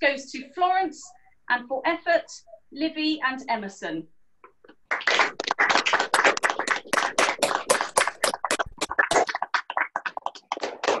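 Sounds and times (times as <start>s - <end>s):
group of people clapping: 4.8s - 11.0s.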